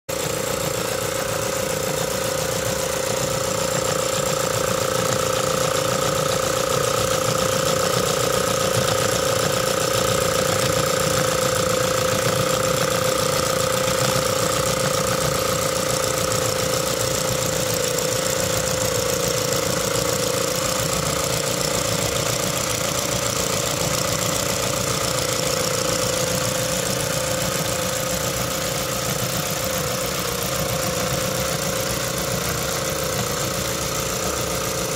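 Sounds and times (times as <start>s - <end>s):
model steam engine exhaust beat: 0.1s - 34.9s
steady whine: 0.2s - 34.9s.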